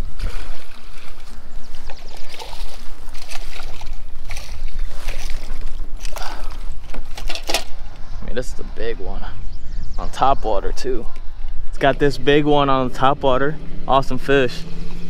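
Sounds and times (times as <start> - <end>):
fish splashing in water: 0.0 - 7.6.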